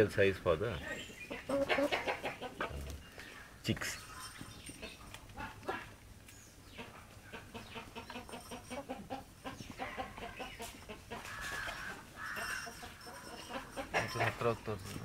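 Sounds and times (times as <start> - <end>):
hens clucking softly: 1.3 - 3.0, 6.7 - 14.4.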